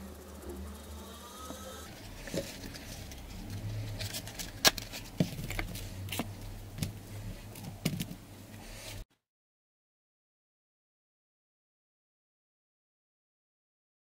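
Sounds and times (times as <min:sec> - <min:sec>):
steady low hum: 0:00.0 - 0:09.0.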